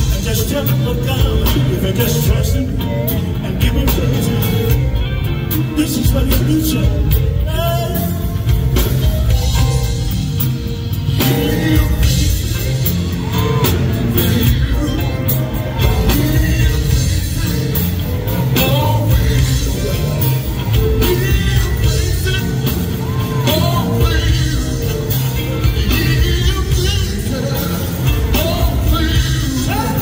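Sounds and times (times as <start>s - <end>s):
person singing lead vocals: 0.0s - 10.1s, 11.0s - 30.0s
electric guitar: 0.0s - 30.0s
heavy bass line: 0.0s - 30.0s
drum beat: 5.9s - 30.0s.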